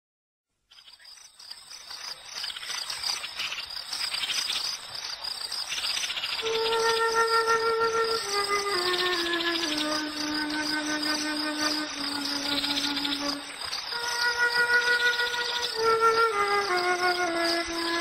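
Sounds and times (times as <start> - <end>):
crickets chirping: 0.7 - 18.0
soft music: 6.4 - 18.0.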